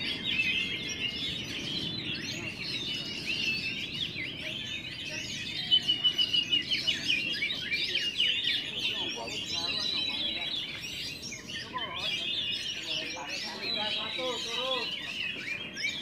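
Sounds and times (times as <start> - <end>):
birds whistling and chirping: 0.0 - 16.0
low background murmur: 0.0 - 16.0.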